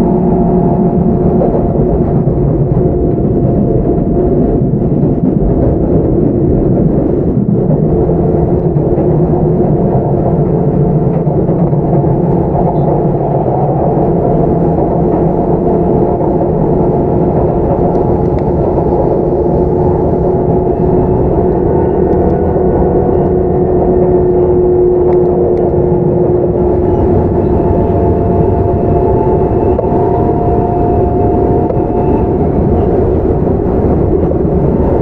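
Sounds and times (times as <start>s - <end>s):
train wheels rumbling on rails: 0.0s - 35.0s
traction motor droning: 11.8s - 35.0s.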